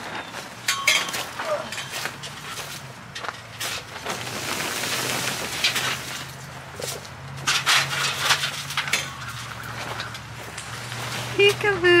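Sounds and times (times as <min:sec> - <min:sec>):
plastic tarp rustling: 0:03.6 - 0:10.0, 0:10.6 - 0:12.0.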